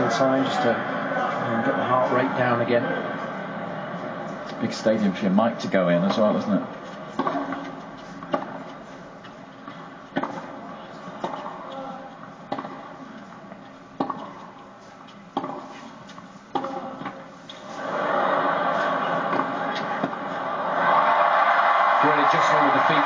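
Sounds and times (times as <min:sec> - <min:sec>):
tennis ball struck by rackets: 0:07.1 - 0:08.7, 0:10.1 - 0:10.5, 0:11.2 - 0:11.6, 0:12.5 - 0:12.8, 0:14.0 - 0:14.5, 0:15.3 - 0:15.8, 0:16.5 - 0:17.2.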